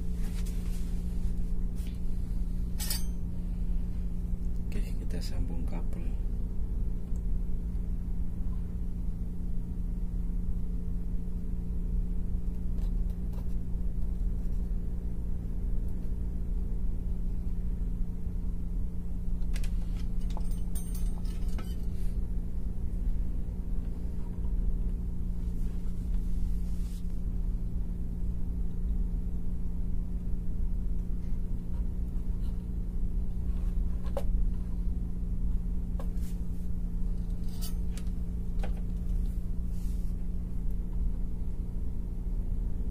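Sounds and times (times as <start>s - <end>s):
steady low hum: 0.0s - 42.9s
clicks and clinks of wires: 2.8s - 3.2s, 19.4s - 21.9s.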